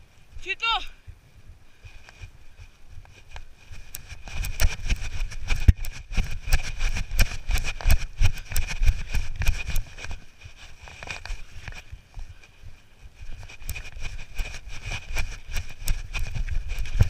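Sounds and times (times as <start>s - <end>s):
footsteps running on grass: 0.3s - 17.0s.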